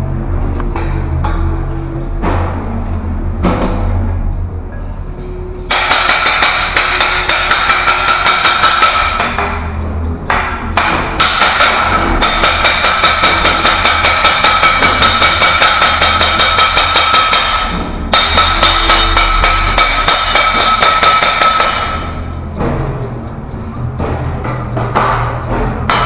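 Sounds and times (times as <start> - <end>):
hammer striking steel tube: 5.7 - 22.8, 24.0 - 26.0
metallic ringing tone: 17.2 - 22.4.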